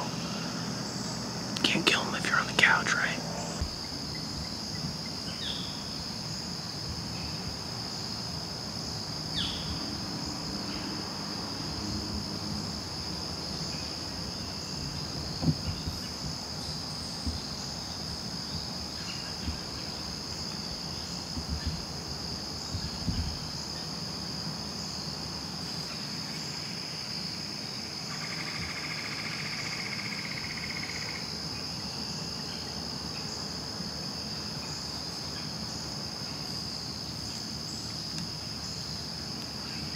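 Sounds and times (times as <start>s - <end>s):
crickets and insects chorus: 0.0s - 39.9s
low knocks and thuds: 15.2s - 16.4s.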